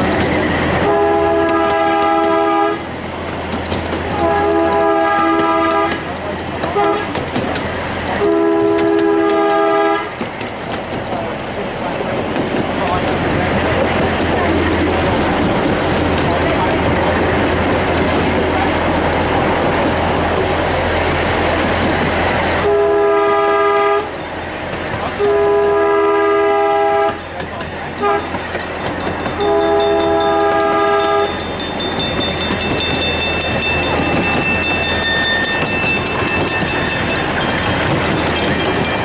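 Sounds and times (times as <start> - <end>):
train wheels rumbling on rails: 0.0 - 39.0
train whistle blasts: 0.8 - 2.9, 4.2 - 6.0, 6.8 - 7.1, 8.2 - 10.1, 22.6 - 24.1, 25.2 - 27.2, 28.0 - 28.4, 29.4 - 31.4.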